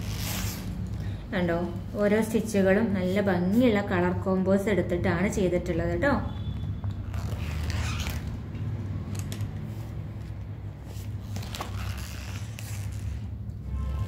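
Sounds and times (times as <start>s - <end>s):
paper pages rustling: 9.7s - 13.2s.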